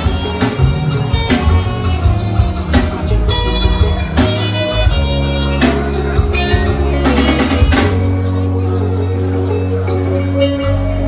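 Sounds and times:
party music with heavy bass: 0.0 - 8.3.

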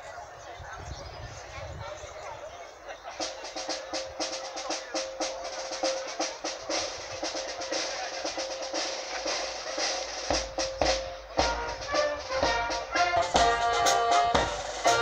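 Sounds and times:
fast drum beat: 3.2 - 15.0
held musical note: 3.5 - 15.0.

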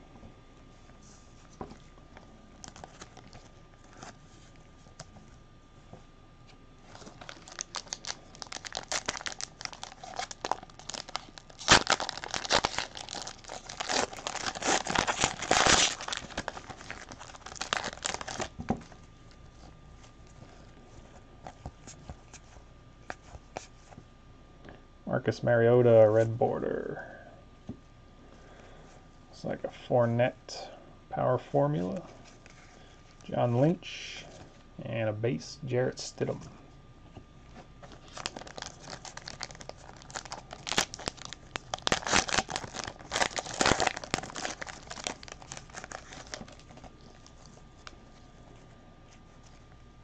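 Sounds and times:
foil wrappers tearing and crinkling: 6.9 - 18.9, 37.9 - 48.0.

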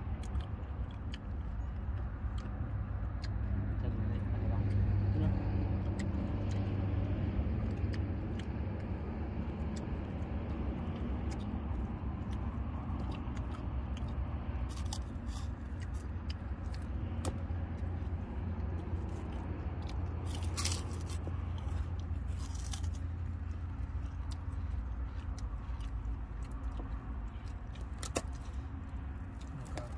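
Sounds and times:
people chewing crackers: 0.0 - 29.9
steady low hum: 0.0 - 29.9
short crunches: 18.9 - 29.9.

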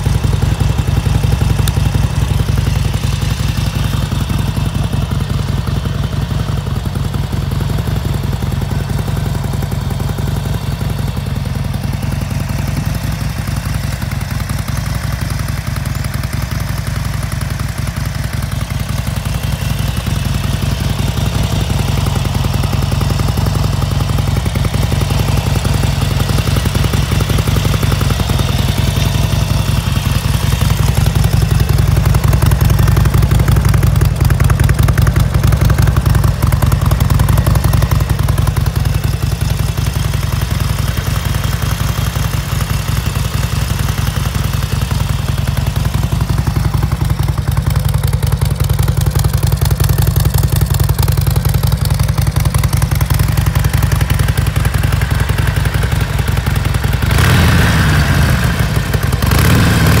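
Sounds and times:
motorcycle engine idling: 0.0 - 60.0.

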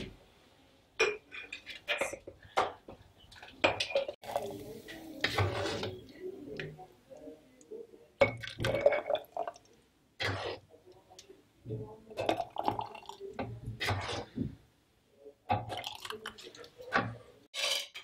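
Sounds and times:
metal ladle scraping pot: 4.3 - 6.1, 10.2 - 10.6, 13.8 - 14.4, 17.5 - 18.0
thick liquid pouring: 15.6 - 16.9.

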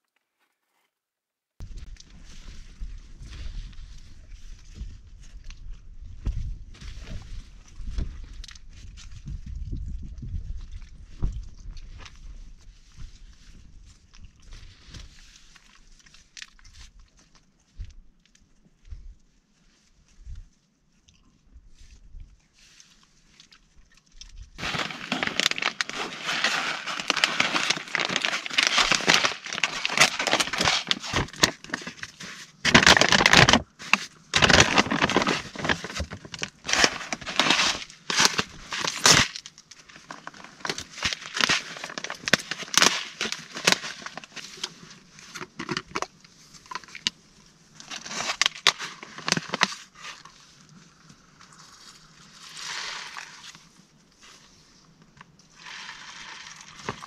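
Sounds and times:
plastic packaging crinkling: 24.6 - 47.1, 47.7 - 50.3, 55.6 - 57.0.

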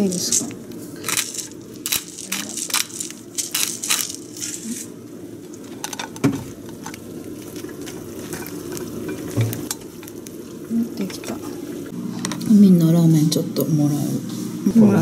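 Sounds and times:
pepper mill grinding: 0.0 - 11.5.

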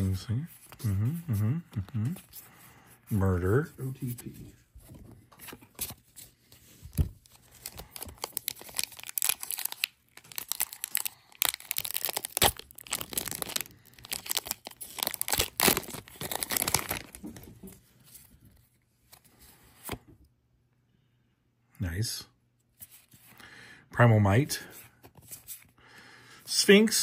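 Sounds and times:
foil wrapper tearing and crinkling: 7.4 - 17.2.

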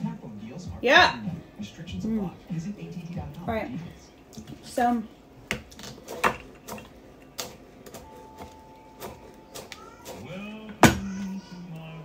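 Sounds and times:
knife chopping on plastic board: 5.5 - 11.2.

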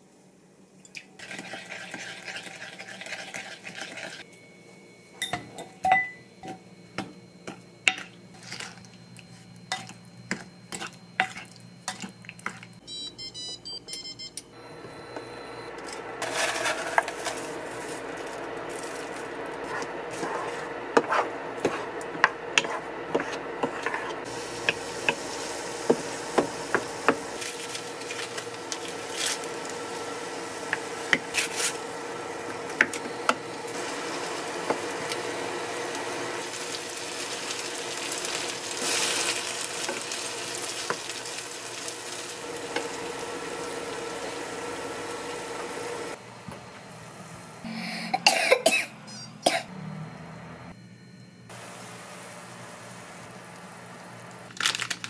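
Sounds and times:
spoon clinking in glass bowl: 5.2 - 6.6
rice cakes sizzling in oil: 16.2 - 21.8, 24.2 - 32.2, 33.0 - 46.2
wooden spatula tapping and scraping: 19.7 - 25.2.

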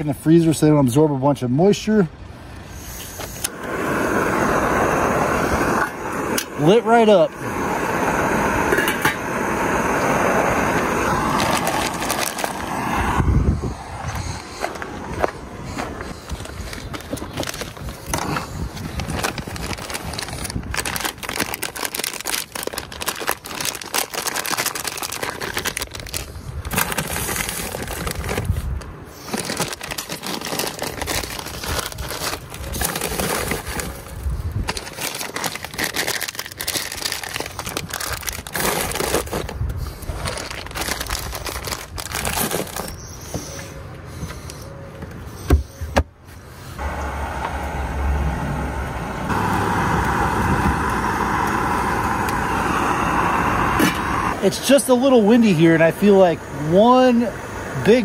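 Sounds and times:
plastic bags crinkling: 11.1 - 12.7, 16.2 - 43.0.

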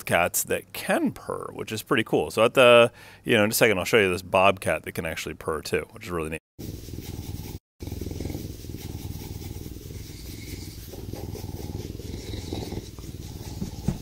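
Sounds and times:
bobcat purring: 6.6 - 14.0.

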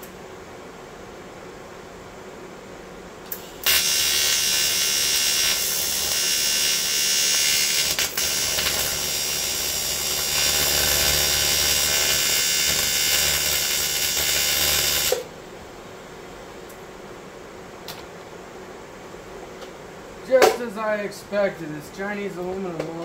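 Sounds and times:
welding arc buzzing: 3.3 - 15.3.

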